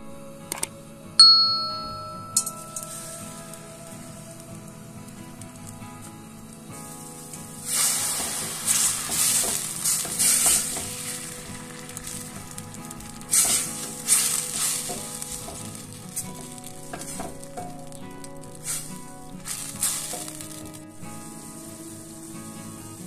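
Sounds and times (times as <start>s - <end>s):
tomato sizzling in oil: 1.4s - 23.0s
spatula stirring in pan: 7.6s - 18.0s.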